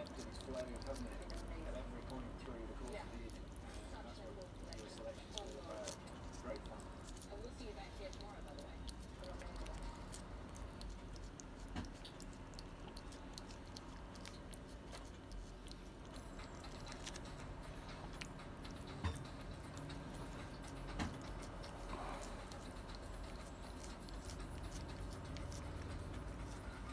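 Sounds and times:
cat licking with wet tongue clicks: 8.0 - 26.6.

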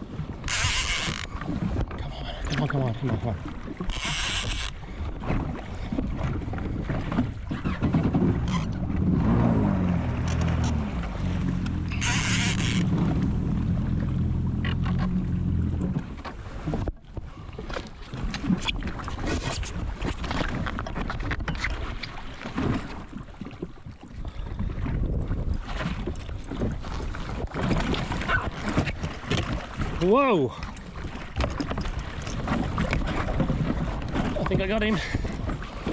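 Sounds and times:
jet ski engine running: 6.7 - 17.0.

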